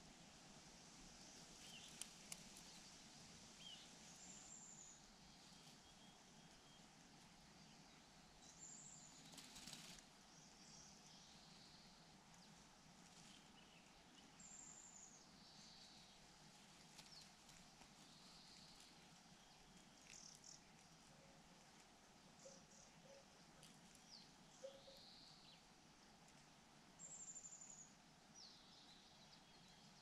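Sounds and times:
high whistled birdsong: 0:01.2 - 0:02.0, 0:03.6 - 0:06.9, 0:24.1 - 0:25.6
soft bird chirps: 0:01.2 - 0:03.0, 0:03.6 - 0:21.5, 0:22.4 - 0:25.8
faint clicks: 0:01.7 - 0:02.8, 0:19.7 - 0:20.9.

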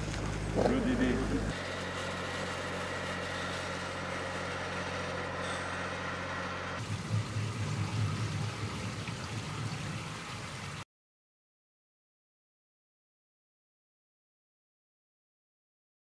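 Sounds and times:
engine running: 0:00.0 - 0:10.8
grape destemmer rumbling: 0:00.0 - 0:10.8.

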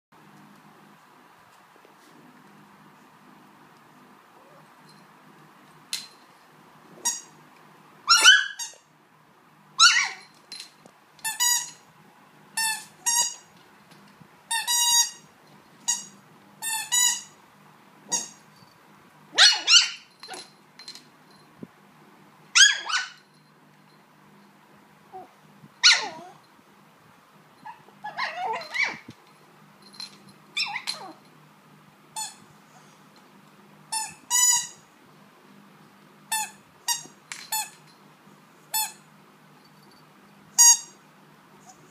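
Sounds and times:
squeaky dog toy squeaking: 0:07.0 - 0:07.3, 0:08.1 - 0:08.9, 0:09.8 - 0:10.3, 0:11.2 - 0:11.8, 0:12.6 - 0:13.5, 0:14.5 - 0:15.2, 0:15.9 - 0:17.4, 0:18.1 - 0:18.4, 0:19.4 - 0:20.4, 0:22.6 - 0:23.2, 0:27.6 - 0:29.0, 0:30.6 - 0:31.2, 0:32.2 - 0:32.4, 0:33.9 - 0:34.8, 0:36.3 - 0:37.8, 0:38.7 - 0:39.0, 0:40.6 - 0:41.0.

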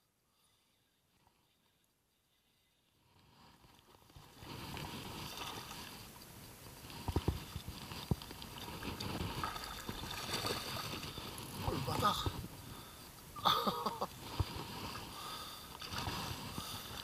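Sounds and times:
water splashing against boat: 0:06.7 - 0:12.6.

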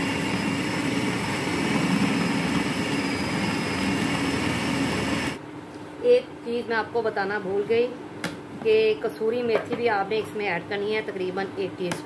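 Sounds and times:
electric food chopper whining: 0:00.0 - 0:05.4.

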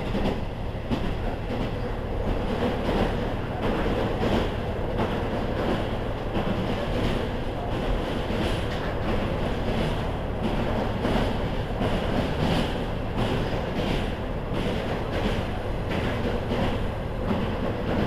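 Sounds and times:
diesel railcar rumble: 0:00.0 - 0:18.0.

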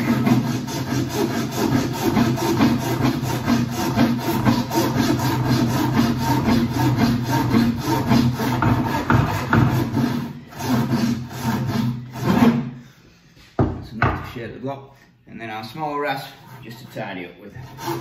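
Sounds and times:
wood rasp filing wood: 0:00.0 - 0:12.8, 0:16.2 - 0:18.0.

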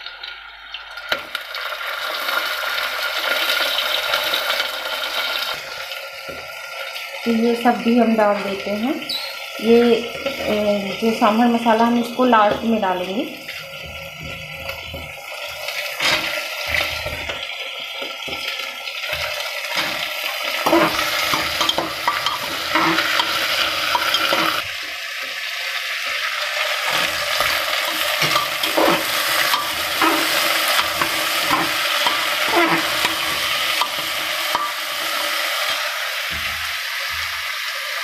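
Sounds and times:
vegetables sizzling in hot oil: 0:00.0 - 0:38.0
metal ladle scraping a pot: 0:13.5 - 0:17.4, 0:19.1 - 0:24.7, 0:26.8 - 0:37.3.

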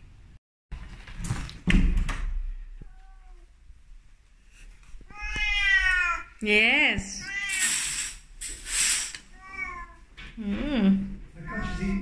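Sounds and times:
cat meowing: 0:02.8 - 0:03.5, 0:05.1 - 0:06.4, 0:07.2 - 0:08.0, 0:09.3 - 0:10.1.

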